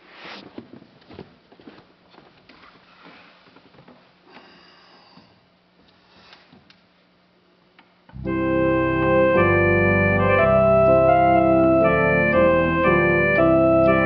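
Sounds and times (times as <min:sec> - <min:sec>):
person sniffing: 0:04.3 - 0:06.5
low hum: 0:08.1 - 0:14.0.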